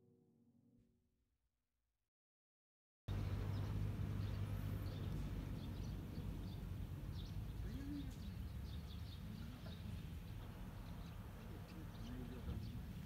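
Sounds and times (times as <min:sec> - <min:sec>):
low outdoor rumble: 0:03.1 - 0:13.0
small birds chirping: 0:03.1 - 0:13.0.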